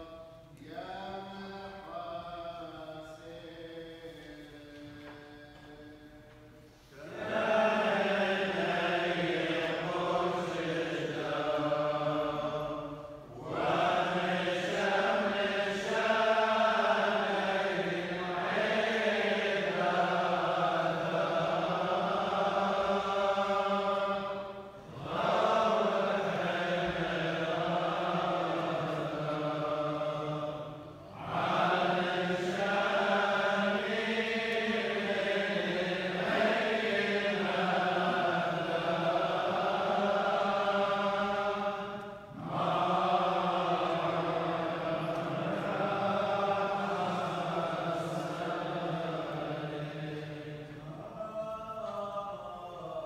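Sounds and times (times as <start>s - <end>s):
priests chanting: 0.0s - 53.0s.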